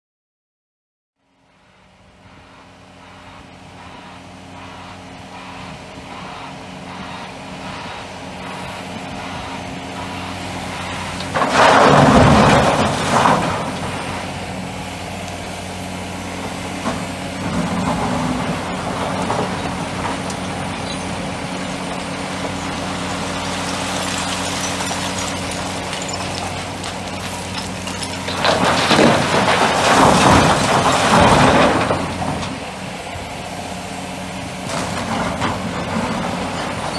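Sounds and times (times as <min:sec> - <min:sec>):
diesel engines running: 0:01.2 - 0:36.9
rock crashing into metal truck bed: 0:11.2 - 0:14.0, 0:17.4 - 0:32.6
rock scraping: 0:17.5 - 0:32.1.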